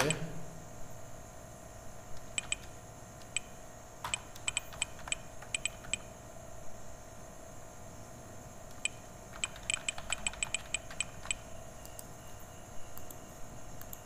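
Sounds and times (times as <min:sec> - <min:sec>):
computer keyboard typing: 0:02.2 - 0:06.1, 0:08.7 - 0:11.4.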